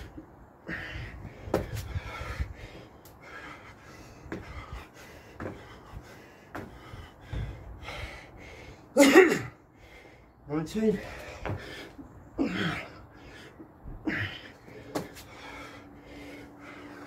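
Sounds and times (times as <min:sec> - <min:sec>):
man panting: 0:00.0 - 0:17.0
man gasping: 0:00.6 - 0:10.4, 0:11.0 - 0:17.0
feet thudding on slabs: 0:01.4 - 0:02.2, 0:04.3 - 0:07.7, 0:13.9 - 0:15.4.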